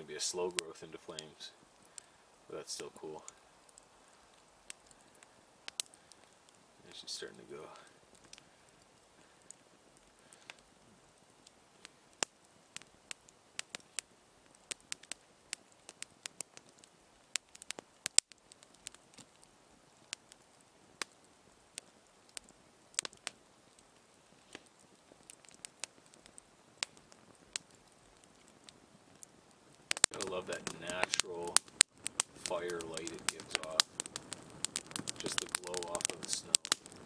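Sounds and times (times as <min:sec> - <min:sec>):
campfire crackling and popping: 0:00.0 - 0:37.0.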